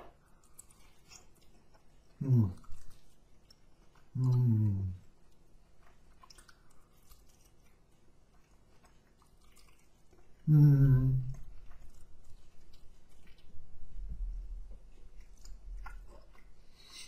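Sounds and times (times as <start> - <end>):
person chewing: 0.0 - 17.0
person humming: 4.2 - 5.0, 10.4 - 11.4.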